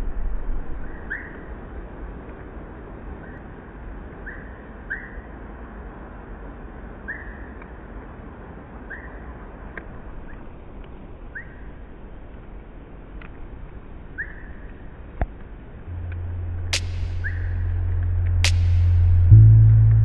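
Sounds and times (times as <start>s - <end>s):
low outdoor background noise: 0.0s - 20.0s
songbird calling: 16.7s - 17.7s.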